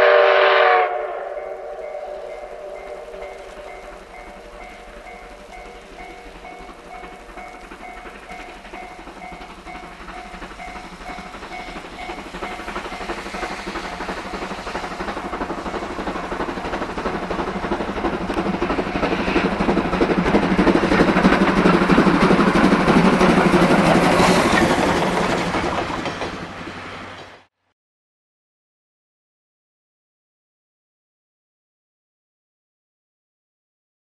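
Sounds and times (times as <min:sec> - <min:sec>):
steam locomotive exhaust: 0:00.0 - 0:27.5
train wheels rolling: 0:01.0 - 0:27.5.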